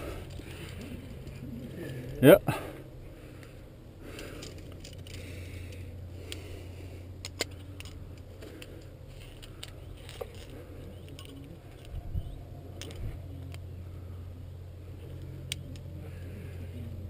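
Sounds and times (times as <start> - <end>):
steady low hum: 0.0 - 17.0
scraping and rustling on rock: 7.4 - 12.0.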